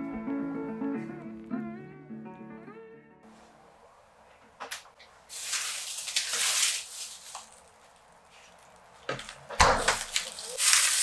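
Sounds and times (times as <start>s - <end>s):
plastic bag crinkling: 5.3s - 11.0s.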